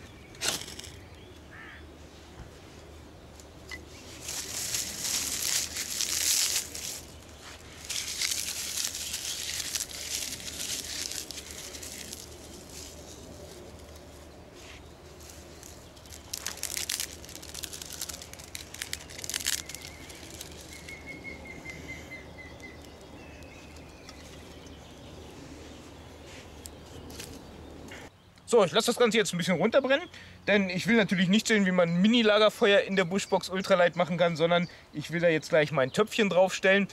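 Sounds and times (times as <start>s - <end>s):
twigs snapping: 0.0s - 1.2s, 3.3s - 14.2s, 15.1s - 25.2s, 26.4s - 28.0s
straw and twigs rustling: 0.0s - 28.1s.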